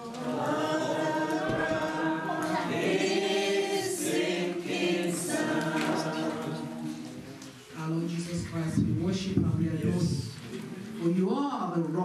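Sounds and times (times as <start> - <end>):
group singing gospel song: 0.0 - 7.4, 9.0 - 10.6.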